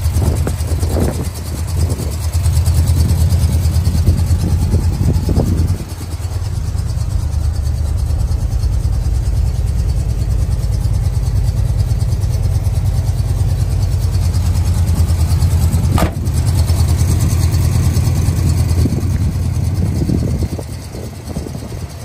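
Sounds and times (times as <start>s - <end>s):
truck engine idling: 0.0s - 22.0s
sharp knock: 16.0s - 16.4s.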